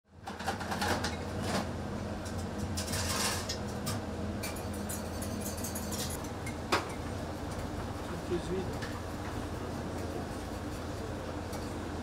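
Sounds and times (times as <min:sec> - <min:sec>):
dishes and utensils clinking: 0:02.8 - 0:06.2.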